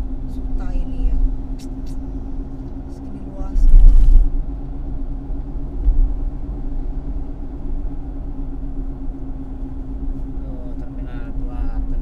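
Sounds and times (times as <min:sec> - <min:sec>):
car driving rumble inside cabin: 0:00.0 - 0:12.0
steady hum: 0:00.0 - 0:12.0
loud low thump: 0:05.8 - 0:06.3.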